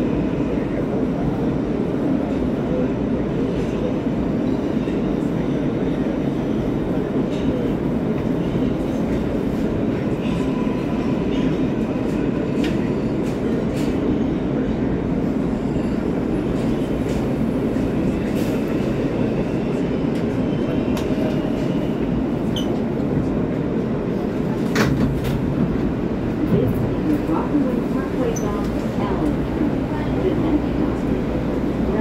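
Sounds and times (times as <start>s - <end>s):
subway wheels rumbling on track: 0.0s - 32.0s.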